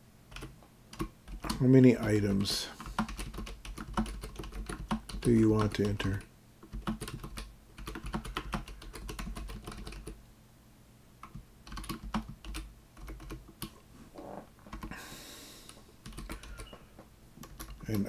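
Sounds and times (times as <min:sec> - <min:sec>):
computer keyboard typing: 0:00.3 - 0:01.6, 0:02.8 - 0:10.2, 0:11.2 - 0:13.8, 0:14.7 - 0:15.0, 0:16.0 - 0:16.7, 0:17.4 - 0:18.0.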